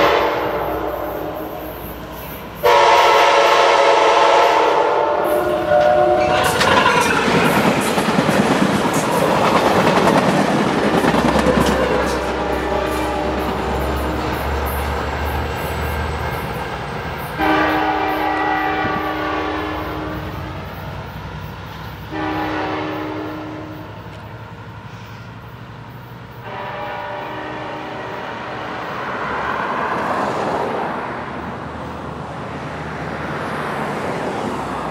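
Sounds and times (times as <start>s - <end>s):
locomotive air horn blasts: 0.0s - 1.8s, 2.6s - 7.6s, 11.8s - 14.4s, 17.4s - 20.6s, 22.1s - 24.0s, 26.4s - 28.9s
train running rumble: 0.0s - 34.9s.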